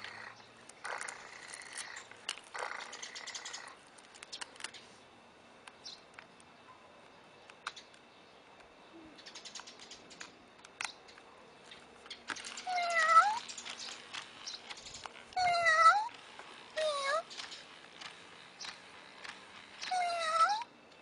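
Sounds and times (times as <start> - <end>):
faint steady toy hum: 0.0 - 21.0
toy kitten electronic meow: 12.7 - 13.5, 15.4 - 16.1, 16.8 - 17.3, 19.8 - 20.7.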